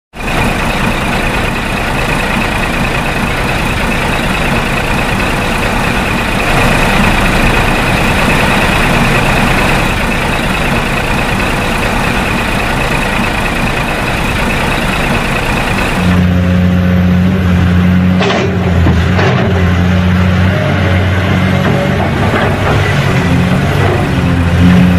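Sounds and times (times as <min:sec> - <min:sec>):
heavy vehicle engine running: 0:00.1 - 0:24.9.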